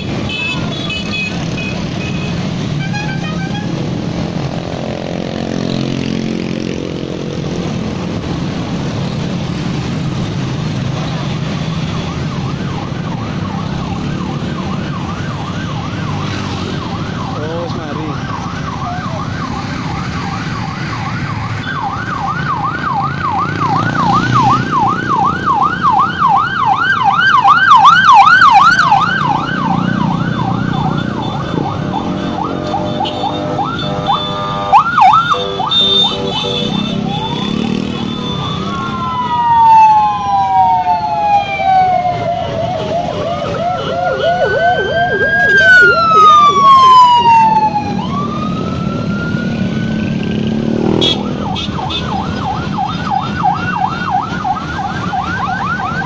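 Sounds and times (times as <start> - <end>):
motorcycle engines: 0.0 - 56.0
wailing siren: 0.0 - 56.0
warbling yelp siren: 9.1 - 56.0.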